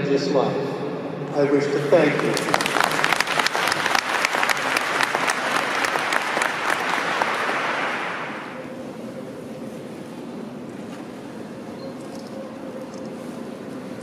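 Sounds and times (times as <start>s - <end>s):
crowd applauding: 1.8s - 8.6s.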